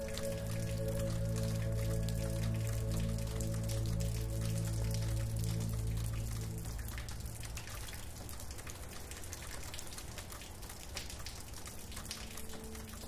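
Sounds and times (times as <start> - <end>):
soft sustained music: 0.0 - 8.8, 11.5 - 13.0
steady rain with drops pattering: 0.0 - 13.0.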